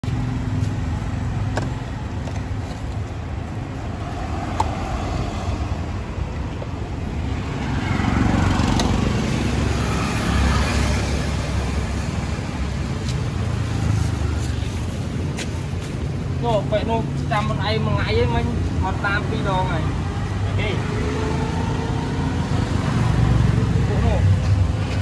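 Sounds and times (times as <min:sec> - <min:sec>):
road traffic rumbling: 0:00.0 - 0:25.0
vehicle passing: 0:03.6 - 0:14.9, 0:18.3 - 0:25.0.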